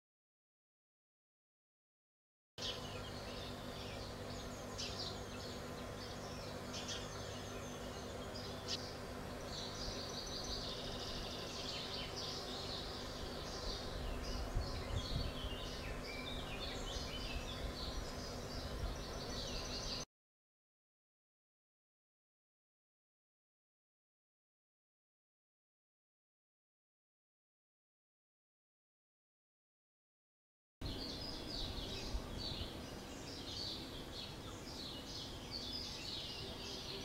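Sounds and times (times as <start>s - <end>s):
slowed birds chirping: 2.6s - 20.1s, 30.8s - 37.0s.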